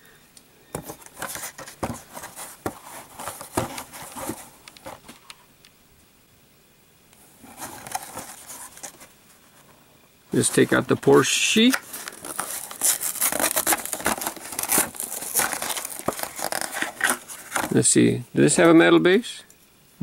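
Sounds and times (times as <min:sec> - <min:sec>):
plastic blister pack crinkling: 0:10.4 - 0:17.8.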